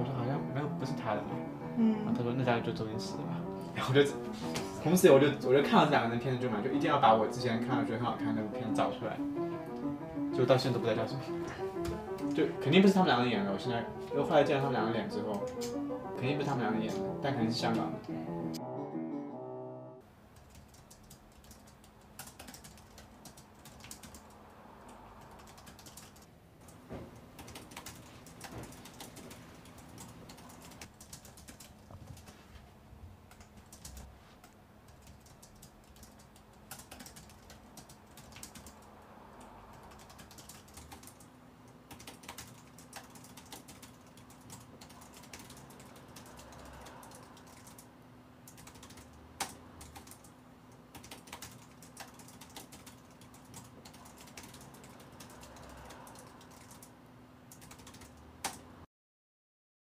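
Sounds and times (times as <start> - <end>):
keyboard typing clicks: 20.4 - 24.3, 34.9 - 38.8, 39.7 - 41.3, 41.9 - 47.9, 48.5 - 50.3, 50.9 - 56.9, 57.5 - 58.6.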